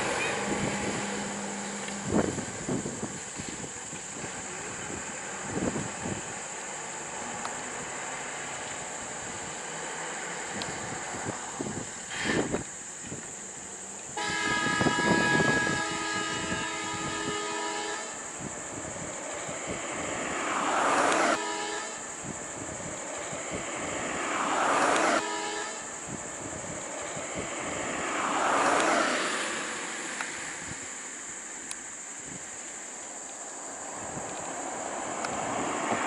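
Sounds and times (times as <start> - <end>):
engine noise: 0.0 - 36.0
bus horn blast: 14.2 - 18.3, 21.1 - 22.1, 24.8 - 26.0
faint horn notes: 14.2 - 18.3.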